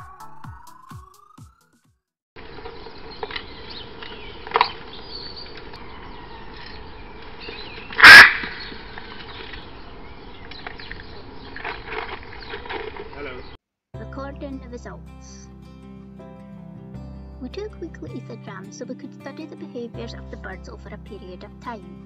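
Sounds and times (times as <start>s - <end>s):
macaws squawking: 7.4s - 9.7s.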